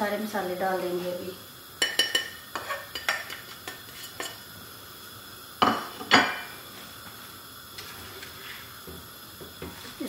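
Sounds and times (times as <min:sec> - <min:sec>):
spatula scraping a frying pan: 0:01.8 - 0:04.4.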